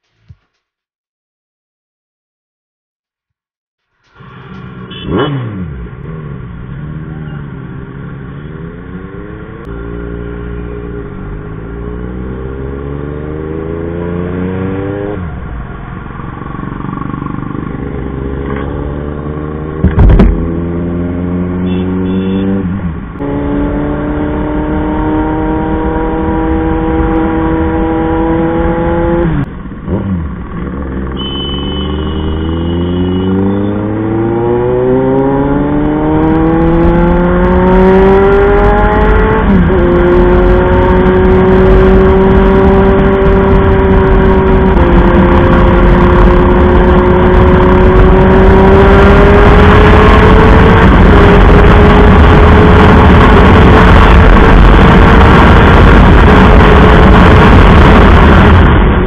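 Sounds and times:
motorcycle engine accelerating: 4.1 - 59.0
sharp loud knock: 19.8 - 20.4.

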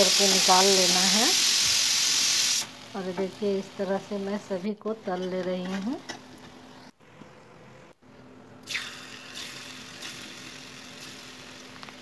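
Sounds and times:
food frying in hot oil: 0.0 - 4.5, 8.7 - 12.0.

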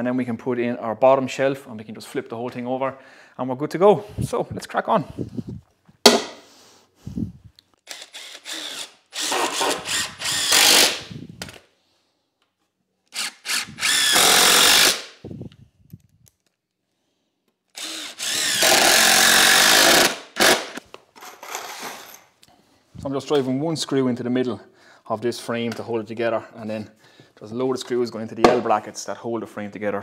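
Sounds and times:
cordless drill driving screws: 7.8 - 11.2, 13.1 - 15.2, 17.7 - 20.8.

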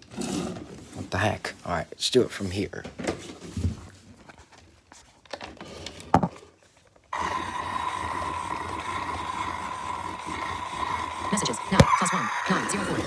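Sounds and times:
toy motor whining: 7.1 - 13.0.

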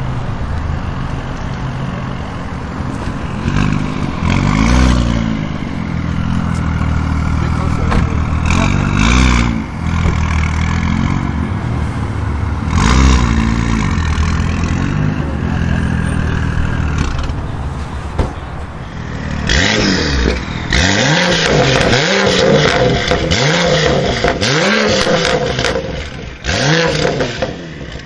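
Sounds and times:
car engine idling and revving: 0.0 - 28.0.

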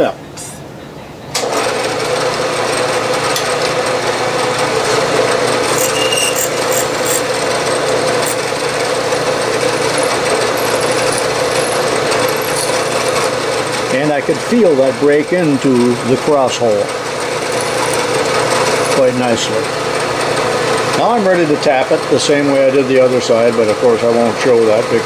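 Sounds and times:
milling machine drilling hum: 2.2 - 14.0, 16.8 - 21.0.

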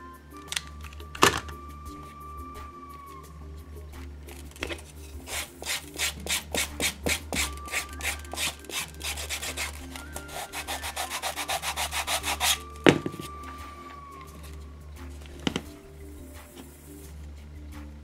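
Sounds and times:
sponge sanding leather: 5.2 - 13.3.

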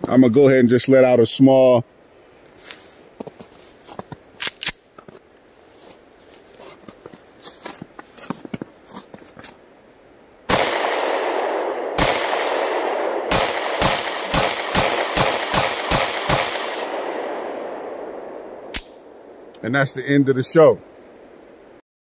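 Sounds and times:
pistol shot: 10.5 - 18.0.

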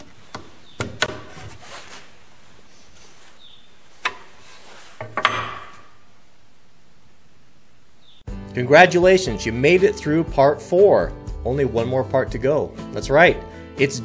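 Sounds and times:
wrench knocking on wood: 5.0 - 5.8.

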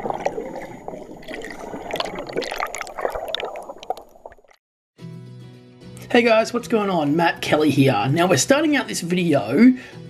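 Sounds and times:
underwater bubbling: 0.0 - 4.6.

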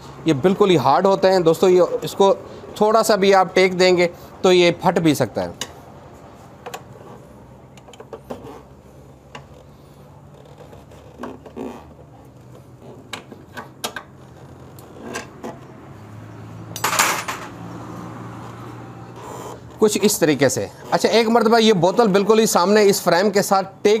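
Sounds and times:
metal tools clinking on metal and plastic: 16.7 - 17.6.

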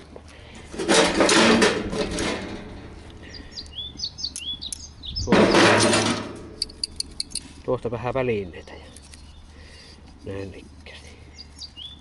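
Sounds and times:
small bird chirping: 3.2 - 5.6, 6.6 - 10.0, 11.3 - 12.0.

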